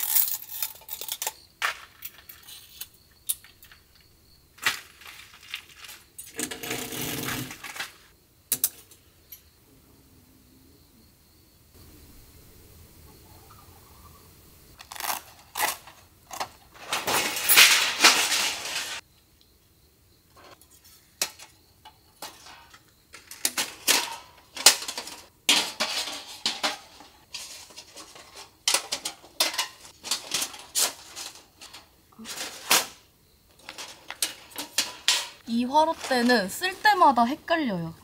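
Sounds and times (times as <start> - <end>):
steel stand and tray clanking: 6.2 - 9.0, 21.2 - 33.0, 33.6 - 36.5.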